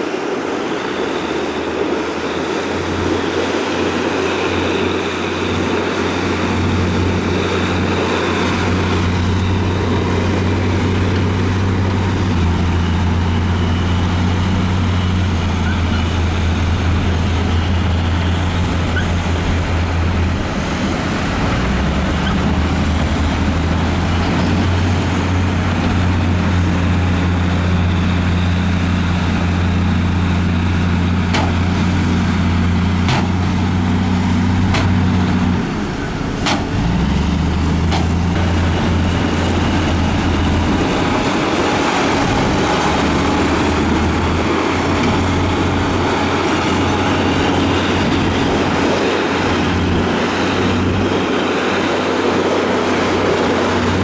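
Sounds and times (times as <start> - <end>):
heavy diesel engines humming: 0.0 - 54.0.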